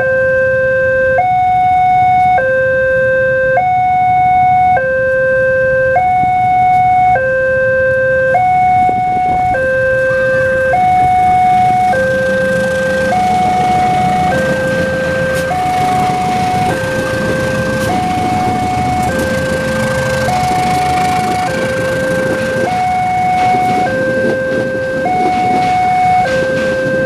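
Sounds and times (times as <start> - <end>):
two-tone crossing alarm: 0.0 - 27.0
diesel locomotive rumble: 8.3 - 27.0.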